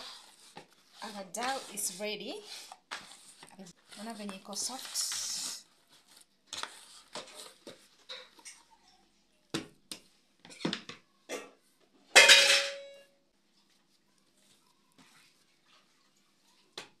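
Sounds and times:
dough rustling in plastic bowl: 0.0s - 8.4s, 13.5s - 16.8s.

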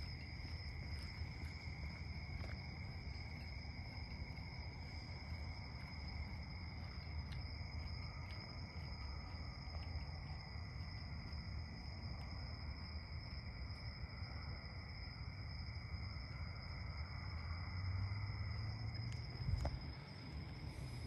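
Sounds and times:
faint ticks: 0.0s - 12.8s, 19.0s - 21.0s
night insects chirring: 0.0s - 21.0s.

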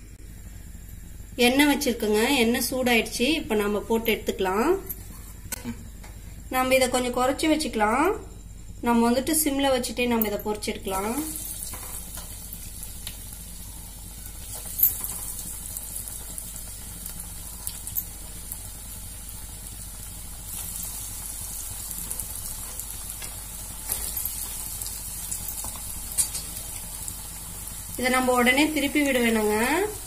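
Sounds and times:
food deep-frying in oil: 10.9s - 30.0s.

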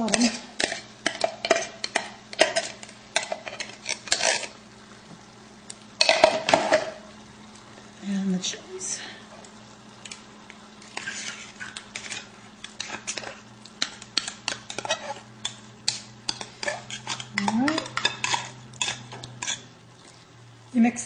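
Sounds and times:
spoon scraping metal pot: 0.0s - 4.6s, 10.8s - 19.7s.

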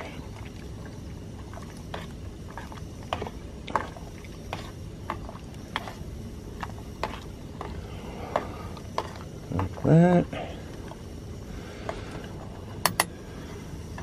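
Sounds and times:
low rush of boiling water: 0.0s - 14.0s.

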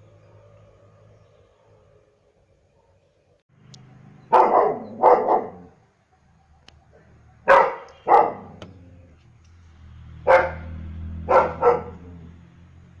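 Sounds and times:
dog barking: 4.3s - 5.8s, 7.4s - 8.6s, 10.2s - 12.2s.

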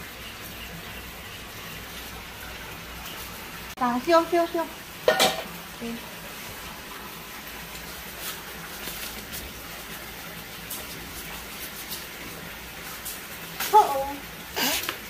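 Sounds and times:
dry leaves crackling: 7.9s - 12.2s.

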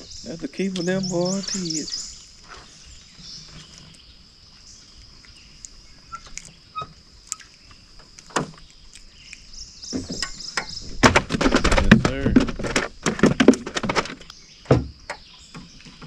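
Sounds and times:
high insect drone: 0.0s - 11.8s
knocks and splashing: 9.9s - 16.0s.

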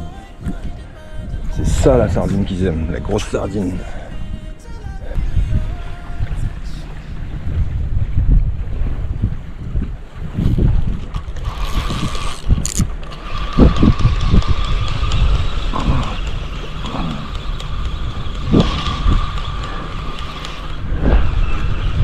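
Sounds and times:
wind buffeting microphone: 0.0s - 22.0s
waves at shoreline: 5.5s - 12.3s
fishing reel whine: 10.4s - 22.0s.

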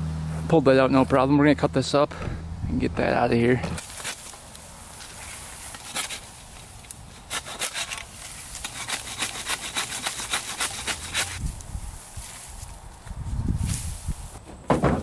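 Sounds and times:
hand saw cutting wood: 5.7s - 6.3s, 7.1s - 11.4s.

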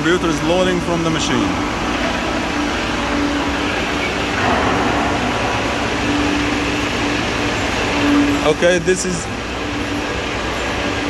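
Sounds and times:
machinery humming: 0.0s - 11.0s
low drone: 1.5s - 10.0s.

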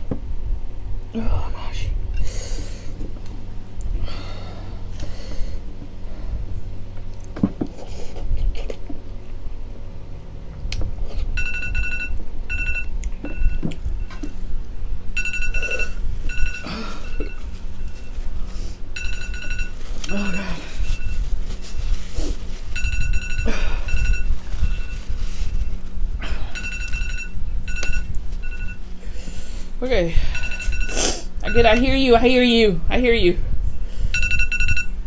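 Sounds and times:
timer alarm beeping: 11.4s - 14.2s, 15.2s - 18.1s, 19.0s - 21.2s, 22.7s - 25.0s, 26.5s - 28.8s, 30.3s - 32.0s, 34.1s - 35.0s.

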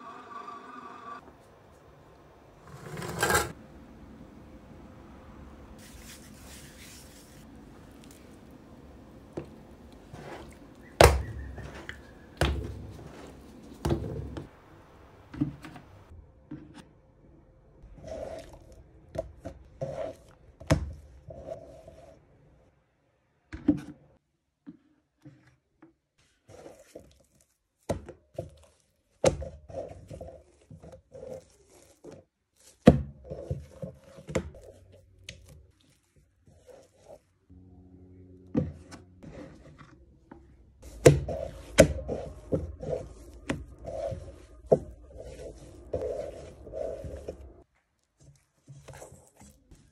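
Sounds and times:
hands stretching and folding dough: 5.8s - 14.6s, 24.2s - 37.5s, 38.5s - 49.9s.

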